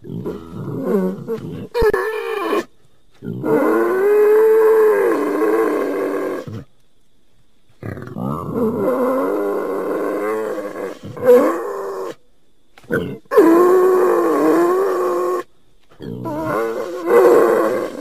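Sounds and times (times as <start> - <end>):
wild boar calling: 12.8 - 18.0.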